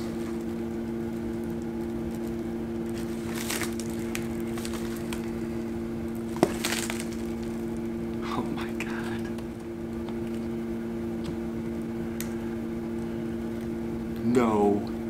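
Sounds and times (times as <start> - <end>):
steady low hum: 0.0 - 15.0
fingers digging through substrate: 2.2 - 5.4.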